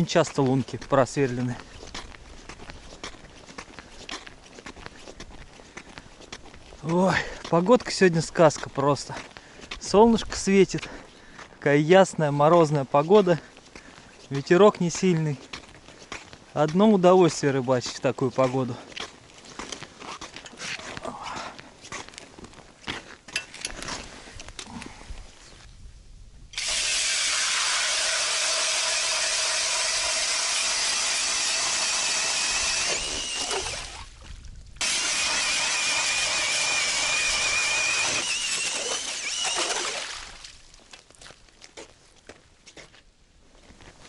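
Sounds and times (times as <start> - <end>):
auger grinding through ice: 26.6 - 34.0, 34.8 - 40.4
drill motor whine: 26.6 - 34.0, 34.8 - 40.0.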